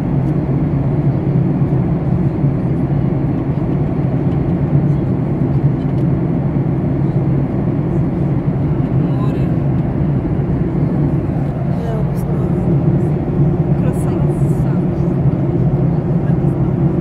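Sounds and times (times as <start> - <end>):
jet engines in flight: 0.0 - 17.0
air rushing along fuselage: 6.3 - 17.0.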